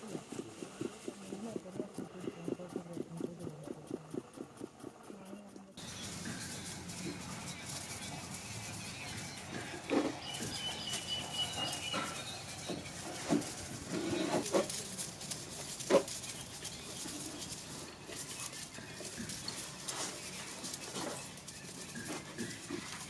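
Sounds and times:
thin high call: 5.9s - 13.5s.

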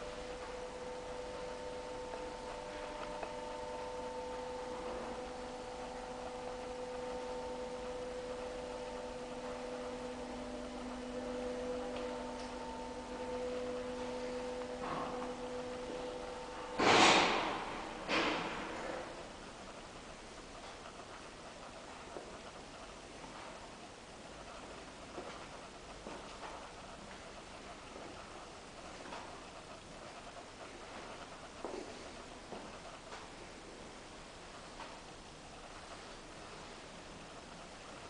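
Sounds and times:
hum of held tones: 0.0s - 20.6s.

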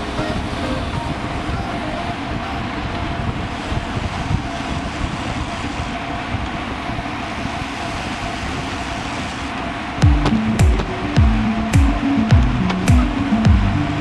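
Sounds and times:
wind on microphone: 0.0s - 9.4s.

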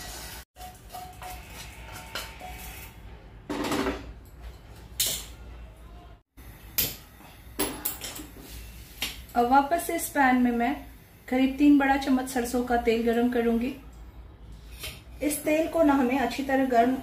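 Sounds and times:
wooden spatula scraping frying pan: 0.0s - 3.0s.

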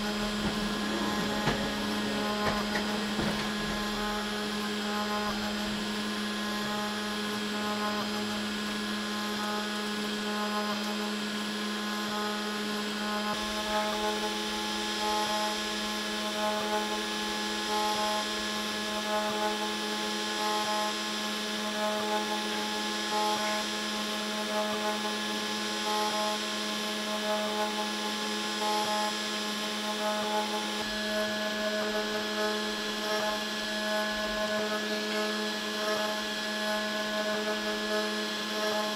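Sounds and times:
high machine tones pulsing: 0.0s - 9.6s
router spindle whining: 0.0s - 38.9s.

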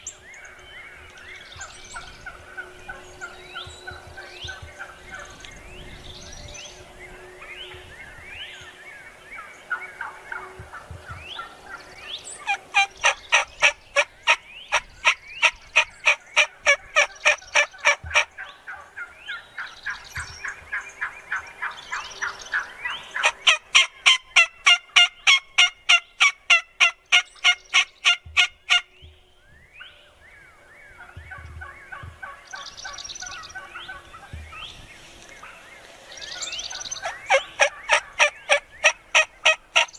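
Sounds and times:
turkey chirps and clucks: 9.4s - 29.2s, 30.9s - 35.6s, 36.2s - 39.9s
turkey raspy yelps: 37.0s - 39.9s.

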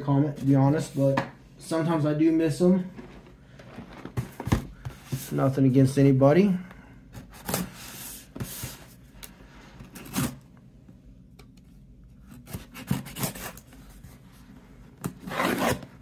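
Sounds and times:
knife slitting packing tape: 12.3s - 13.7s.

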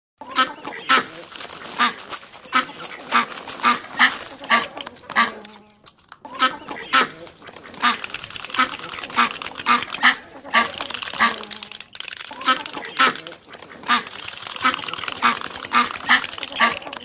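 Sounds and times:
duck quacking: 0.2s - 17.0s.

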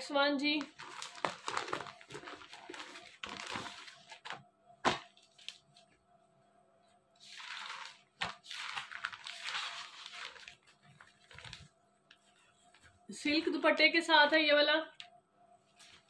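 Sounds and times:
plastic packaging rustling: 0.4s - 5.9s, 7.2s - 13.1s.

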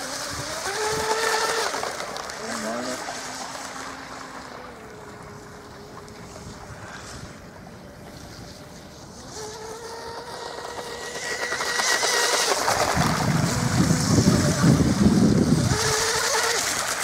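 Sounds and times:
electric motor whining: 0.0s - 6.8s, 8.3s - 17.0s
rough rushing noise: 8.1s - 17.0s.

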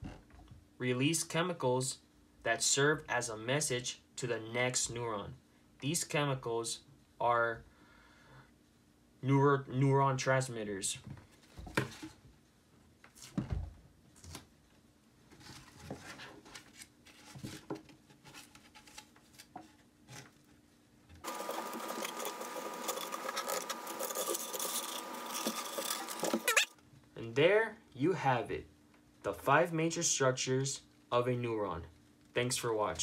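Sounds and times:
hands rustling plant material: 21.2s - 26.7s.

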